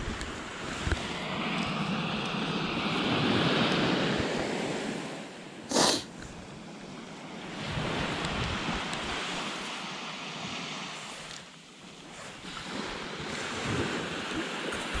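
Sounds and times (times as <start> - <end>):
wind buffeting microphone: 0.0 - 5.1, 6.2 - 9.6.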